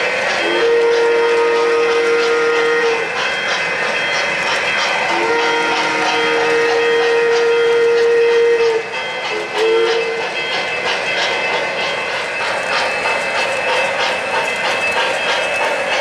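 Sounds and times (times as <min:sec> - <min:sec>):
steam locomotive chuffing: 0:00.0 - 0:16.0
train rumbling on track: 0:00.0 - 0:16.0
model train whistle: 0:00.4 - 0:03.1, 0:05.0 - 0:10.3.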